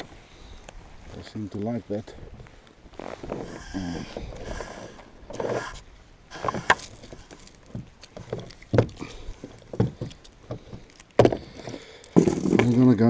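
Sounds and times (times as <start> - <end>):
gear knocking and scraping on kayak: 4.1 - 13.0.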